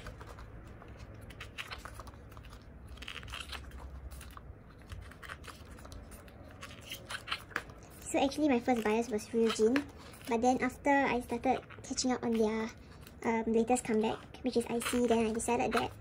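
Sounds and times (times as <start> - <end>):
pages turning: 0.0 - 16.0.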